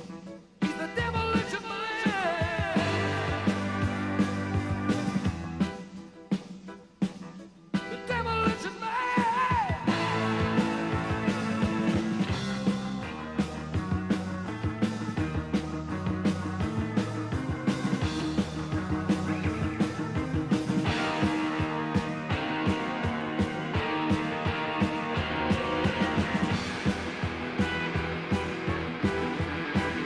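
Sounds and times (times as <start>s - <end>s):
drums steady beat: 0.0s - 30.0s
bass and chord notes: 2.5s - 5.8s, 9.8s - 30.0s.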